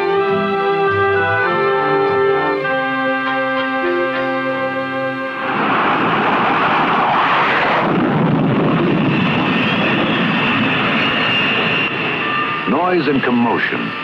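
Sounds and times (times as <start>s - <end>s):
jet engines roaring: 0.0s - 14.0s
high whine: 3.6s - 14.0s.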